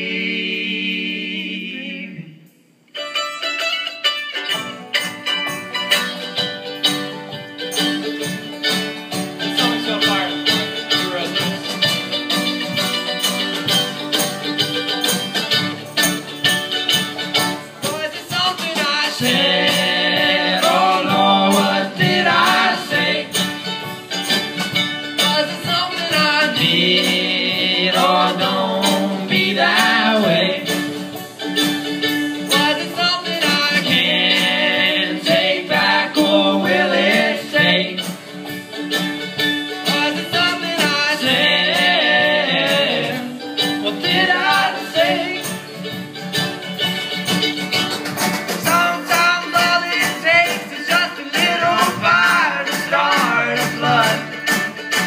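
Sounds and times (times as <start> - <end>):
two voices singing: 0.0 - 2.6, 17.8 - 23.8, 25.2 - 31.2, 32.5 - 38.4, 39.8 - 45.7, 48.6 - 54.6
string band playing: 2.9 - 55.0
drum kit: 4.4 - 55.0.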